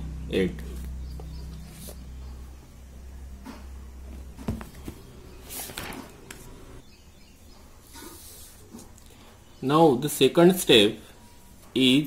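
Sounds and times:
low steady hum: 0:00.0 - 0:09.6
paper rustling: 0:04.4 - 0:06.6.

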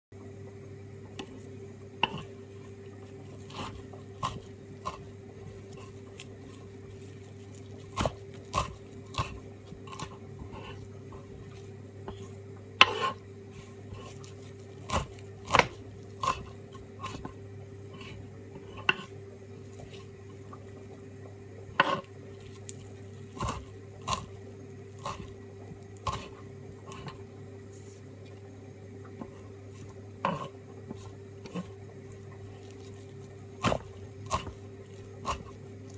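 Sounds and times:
steady low hum: 0:00.1 - 0:35.9
knife chopping on wooden board: 0:02.0 - 0:02.4, 0:03.4 - 0:07.2, 0:07.8 - 0:13.2, 0:13.9 - 0:17.4, 0:21.8 - 0:22.1, 0:23.3 - 0:24.4, 0:25.0 - 0:25.3, 0:26.0 - 0:27.2, 0:30.2 - 0:31.8, 0:33.6 - 0:35.6.

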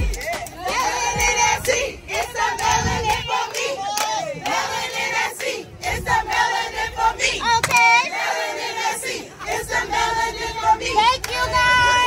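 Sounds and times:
hand claps: 0:00.0 - 0:01.9, 0:02.6 - 0:04.6, 0:07.6 - 0:07.9
women shouting and singing: 0:00.0 - 0:04.7, 0:07.3 - 0:12.0.

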